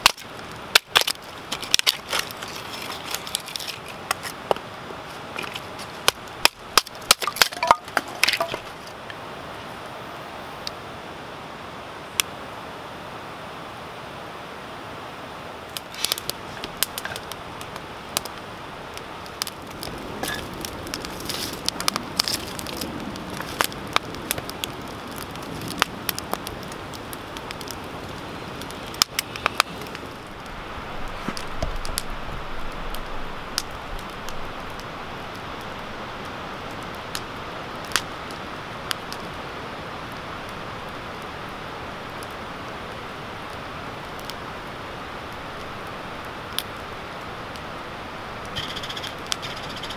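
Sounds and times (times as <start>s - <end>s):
campfire crackling and popping: 0.0s - 10.8s, 12.1s - 12.5s, 15.5s - 49.9s
rush of flame: 15.6s - 49.9s.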